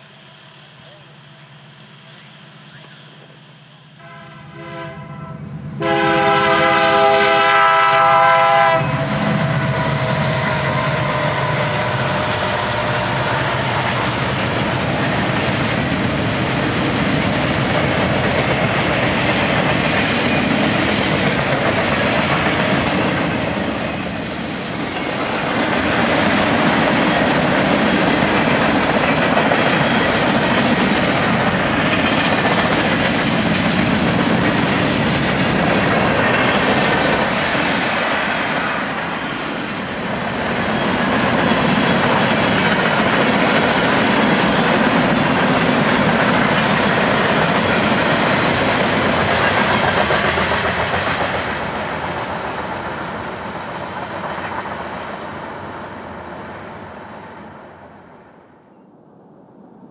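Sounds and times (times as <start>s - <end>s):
freight train rumble and wheel clatter: 0.0s - 58.3s
locomotive horn: 4.0s - 13.9s.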